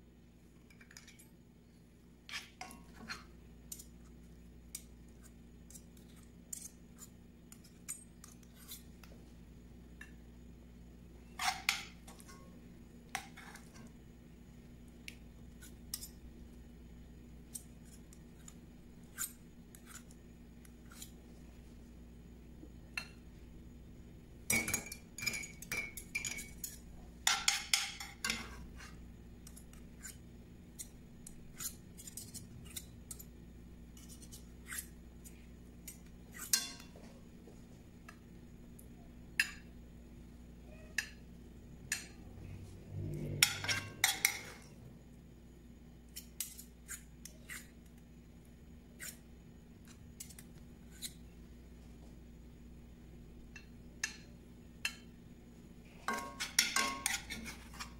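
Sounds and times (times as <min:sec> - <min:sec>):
metal spoons scraping and clinking: 0:02.3 - 0:04.0, 0:04.7 - 0:09.0, 0:11.3 - 0:12.5, 0:15.6 - 0:16.2, 0:17.5 - 0:20.2, 0:20.8 - 0:21.2, 0:24.5 - 0:30.2, 0:30.8 - 0:33.3, 0:34.0 - 0:37.0, 0:43.0 - 0:44.8, 0:46.1 - 0:47.8, 0:49.0 - 0:49.2, 0:49.8 - 0:51.2, 0:56.0 - 0:57.9.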